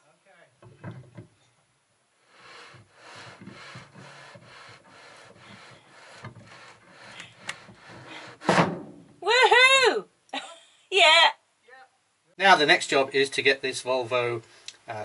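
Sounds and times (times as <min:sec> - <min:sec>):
knock: 0:00.6 - 0:01.3, 0:07.5 - 0:08.9
metal shaft scraping through seal: 0:02.3 - 0:08.5.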